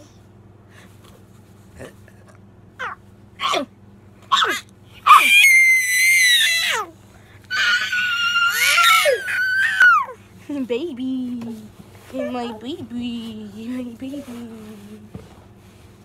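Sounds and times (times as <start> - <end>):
toddler shrieking: 4.3 - 6.9, 7.5 - 10.2.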